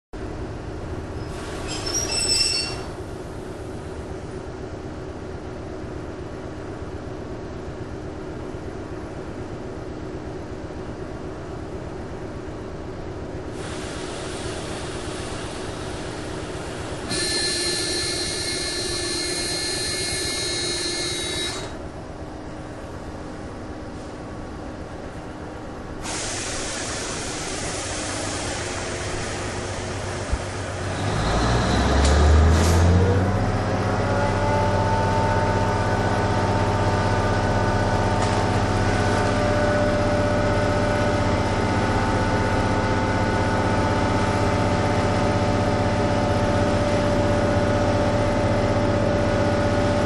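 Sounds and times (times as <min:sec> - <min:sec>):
railcar humming drone: 0:00.2 - 0:50.0.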